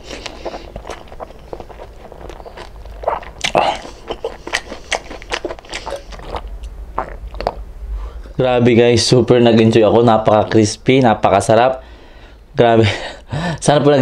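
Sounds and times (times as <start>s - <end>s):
crunchy food chewing: 0.0s - 7.6s.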